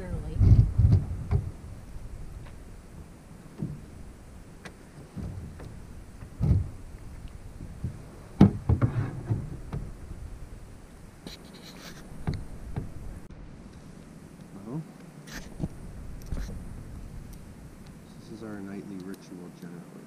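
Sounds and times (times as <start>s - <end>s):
paddle knocks on canoe hull: 7.8s - 9.9s.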